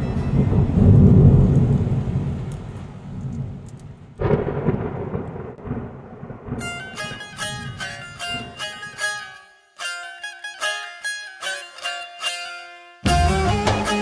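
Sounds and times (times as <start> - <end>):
rain hiss: 0.0 - 6.3
rolling thunder: 0.0 - 8.6
thunder clap: 0.0 - 8.6.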